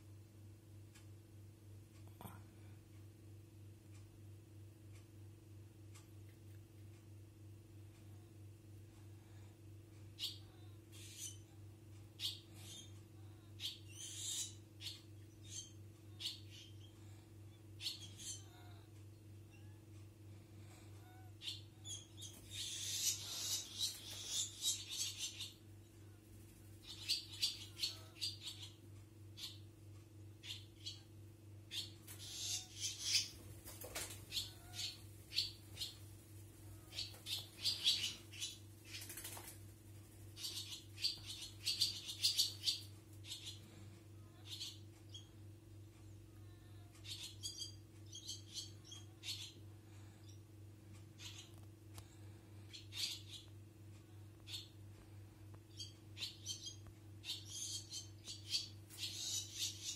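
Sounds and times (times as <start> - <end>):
low electrical hum: 0.0 - 59.9
swallows twittering: 10.2 - 11.5, 12.2 - 18.9, 20.7 - 25.6, 26.8 - 29.7, 30.4 - 31.1, 31.7 - 39.5, 40.2 - 45.4, 51.1 - 53.5, 55.7 - 59.9.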